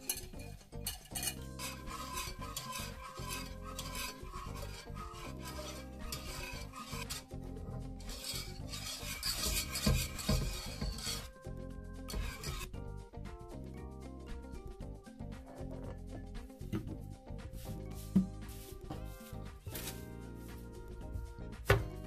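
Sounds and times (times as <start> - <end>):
wire whisk swishing in saucepan: 0.0 - 12.8, 17.3 - 20.9
quiet background music: 0.0 - 22.0.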